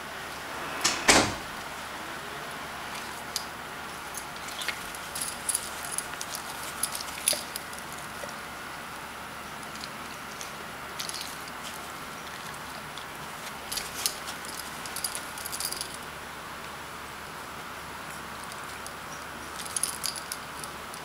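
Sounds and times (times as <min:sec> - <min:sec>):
dog collar tags clinking: 0:04.1 - 0:08.4, 0:13.6 - 0:16.0, 0:19.5 - 0:21.0.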